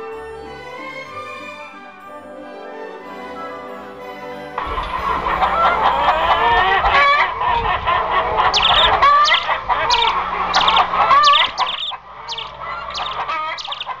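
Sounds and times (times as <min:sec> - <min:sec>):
chick peeping: 0:04.6 - 0:14.0
hen clucking: 0:04.6 - 0:14.0.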